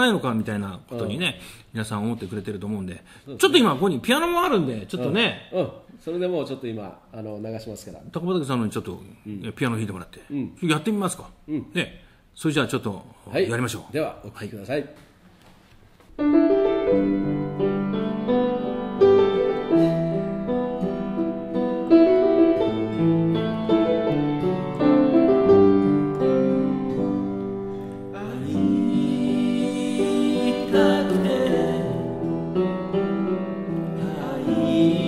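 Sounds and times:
slow piano ballad: 0:16.2 - 0:35.0.

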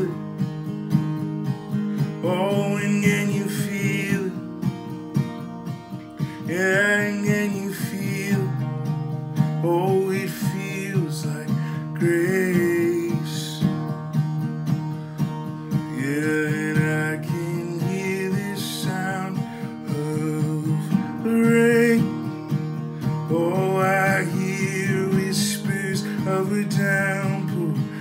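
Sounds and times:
man singing: 0:00.0 - 0:00.2, 0:02.0 - 0:04.7, 0:06.2 - 0:13.8, 0:15.8 - 0:22.3, 0:23.1 - 0:28.0
strummed acoustic guitar: 0:00.0 - 0:28.0.

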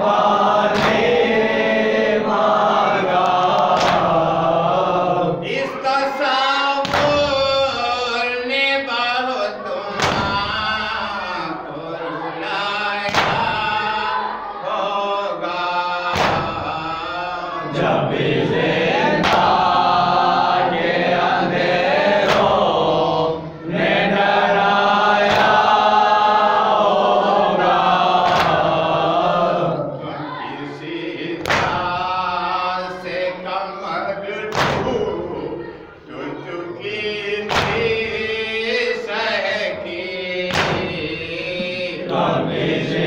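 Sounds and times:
men chanting in chorus: 0:00.0 - 0:43.0
hands slapping chests: 0:00.7 - 0:01.2, 0:03.2 - 0:04.2, 0:13.1 - 0:13.5, 0:16.1 - 0:16.6, 0:19.2 - 0:19.8, 0:22.2 - 0:22.7, 0:25.2 - 0:25.6, 0:28.2 - 0:28.7, 0:31.4 - 0:31.9, 0:37.5 - 0:37.9, 0:40.5 - 0:41.0.

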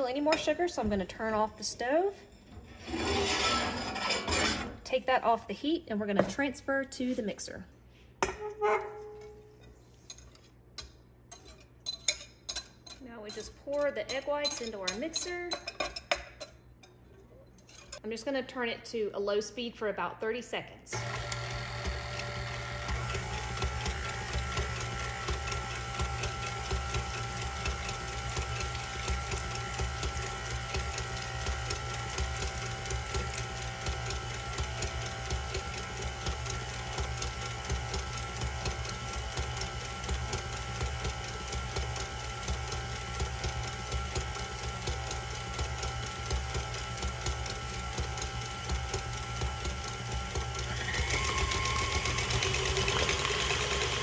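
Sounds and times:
stand mixer motor whine: 0:21.0 - 0:54.0.

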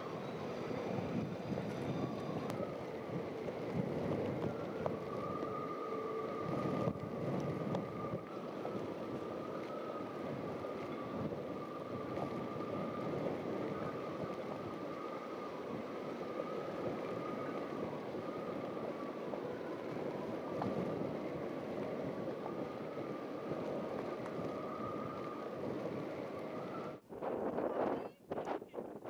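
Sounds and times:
boat motor running: 0:00.0 - 0:27.0
water rushing: 0:00.0 - 0:27.0
wind buffeting microphone: 0:00.0 - 0:29.0.

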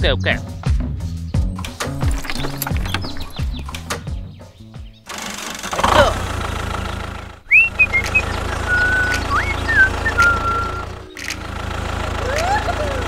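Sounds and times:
tractor engine running: 0:01.6 - 0:13.0
high whistled chirps: 0:07.5 - 0:11.2.

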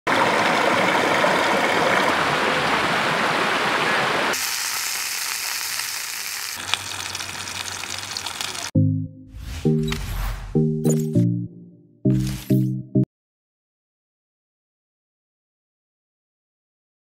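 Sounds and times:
stream rushing over rocks: 0:00.1 - 0:04.4
sausages frying in a skillet: 0:04.3 - 0:08.8
music jingle: 0:08.8 - 0:13.1.

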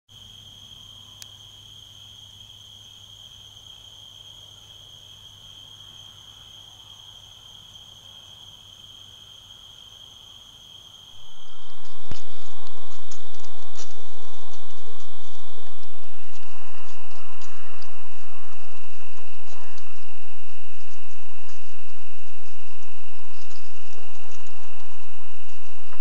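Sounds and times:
insect trilling: 0:00.2 - 0:25.7
low hum: 0:11.1 - 0:26.0
loud rushing noise: 0:11.2 - 0:24.1.

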